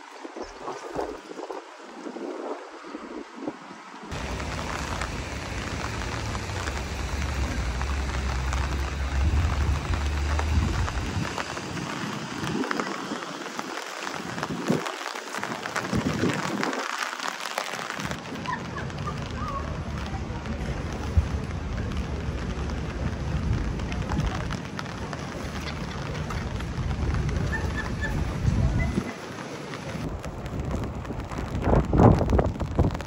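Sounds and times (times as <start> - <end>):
rain falling: 0.0 - 33.0
low rumble: 4.1 - 12.8.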